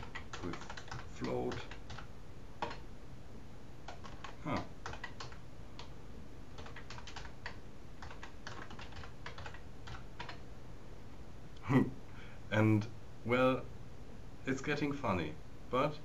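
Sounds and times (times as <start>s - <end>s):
typing on computer keyboard: 0.0s - 2.8s, 3.9s - 5.9s, 6.6s - 10.4s.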